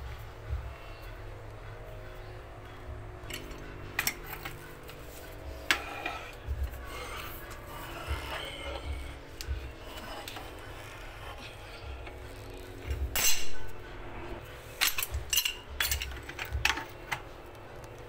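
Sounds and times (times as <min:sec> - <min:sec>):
pipe wrench scraping metal pipe: 0:03.2 - 0:13.8.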